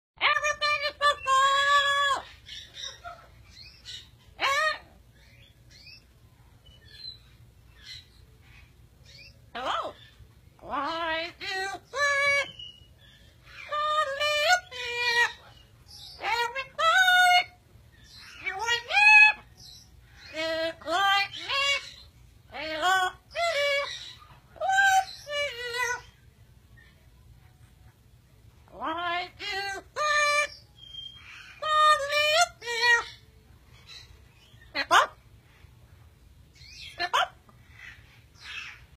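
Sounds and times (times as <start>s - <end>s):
parrot chirping and whistling: 0.3s - 6.1s, 11.0s - 26.2s, 29.1s - 35.2s.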